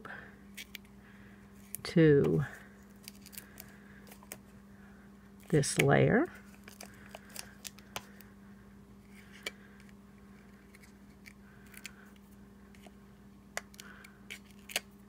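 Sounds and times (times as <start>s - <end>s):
steady low hum: 0.0s - 15.0s
paper clicks and rustles: 2.9s - 4.4s, 6.5s - 8.2s.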